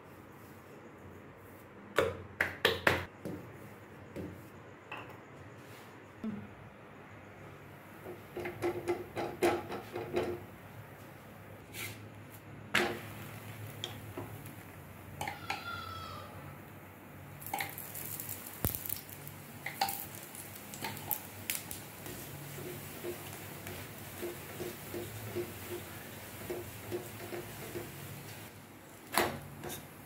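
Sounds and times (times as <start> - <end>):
ghee sizzling: 11.7 - 30.0.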